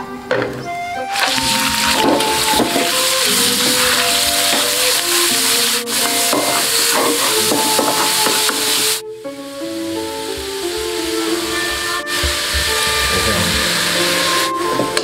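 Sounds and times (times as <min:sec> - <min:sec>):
background music: 0:00.0 - 0:15.0
wooden spatula scraping a wok: 0:01.1 - 0:09.0
meat sizzling in a wok: 0:01.1 - 0:14.6.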